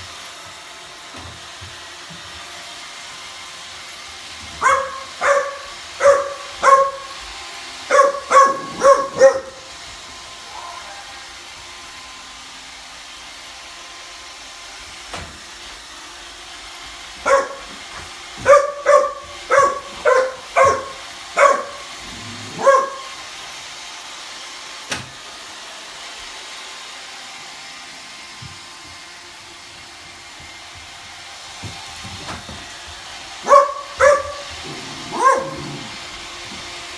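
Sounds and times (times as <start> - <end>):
robot vacuum humming: 0.0 - 36.9
dog barking: 4.6 - 7.2, 7.9 - 9.7, 17.2 - 17.8, 18.4 - 21.9, 22.5 - 23.2, 33.4 - 35.9.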